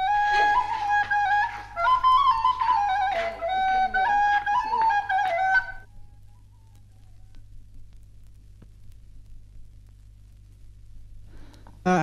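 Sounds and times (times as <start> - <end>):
wind instrument folk melody: 0.0 - 6.0
low hum and crackle: 0.0 - 12.0.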